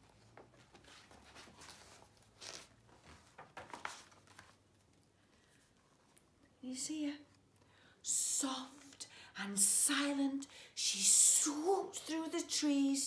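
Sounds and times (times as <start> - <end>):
book pages rustling and turning: 0.0 - 6.2.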